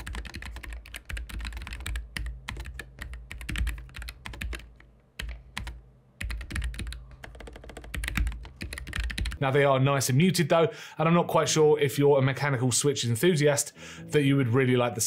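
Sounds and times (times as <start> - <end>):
mechanical keyboard typing: 0.0 - 9.4.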